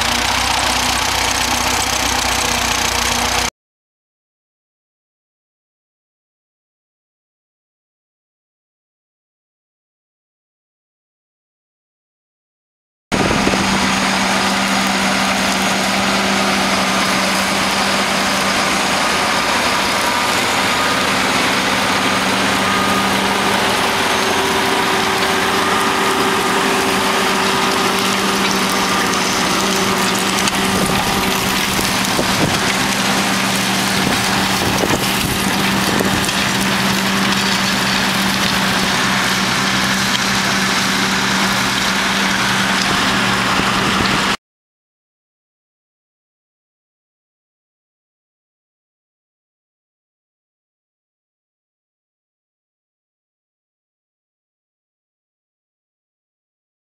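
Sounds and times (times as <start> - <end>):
tractor engine running: 0.0 - 3.5, 13.1 - 44.4.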